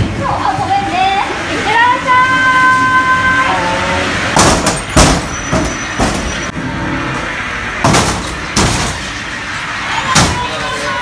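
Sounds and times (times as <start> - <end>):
ride car rolling on rail track: 0.0 - 11.0
swinging doors banging shut: 4.2 - 6.5, 7.8 - 9.2, 10.1 - 10.7.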